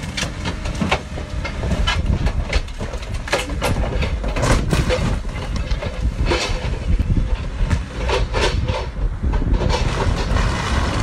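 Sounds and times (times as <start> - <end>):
low rumble: 0.0 - 11.0.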